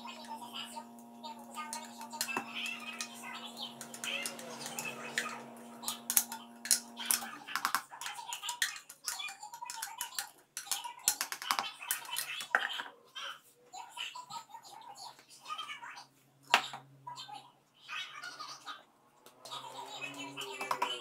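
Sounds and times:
steady background hum: 0:00.0 - 0:08.6
spatula scraping plastic bowl: 0:01.7 - 0:08.7, 0:19.4 - 0:21.0.

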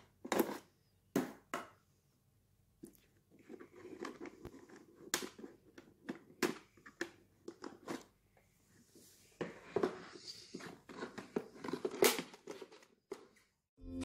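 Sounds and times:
rustling and scraping: 0:02.8 - 0:13.6.

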